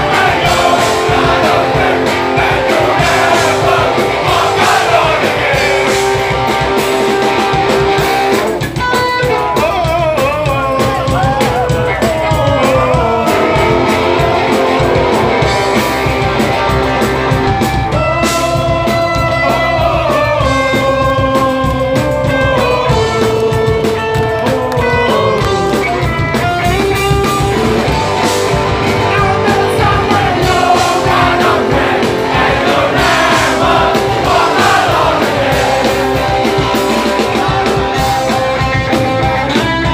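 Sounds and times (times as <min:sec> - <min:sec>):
singer's vocals: 0:00.0 - 0:06.2, 0:09.5 - 0:15.4, 0:18.2 - 0:21.4, 0:28.9 - 0:38.6
live hardcore band playing: 0:00.0 - 0:39.9.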